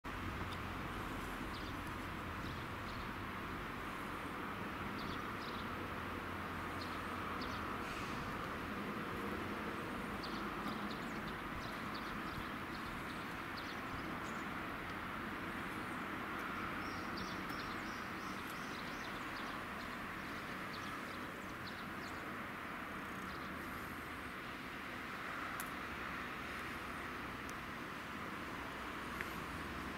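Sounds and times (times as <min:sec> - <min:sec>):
outdoor hiss and low rumble: 0:00.1 - 0:29.9
birds chirping: 0:09.8 - 0:24.1.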